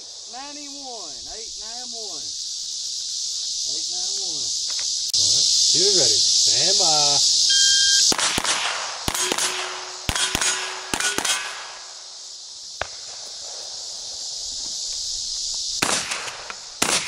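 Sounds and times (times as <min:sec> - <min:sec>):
insects chirring: 0:00.0 - 0:17.0
pistol shots: 0:08.1 - 0:11.9, 0:15.8 - 0:17.0.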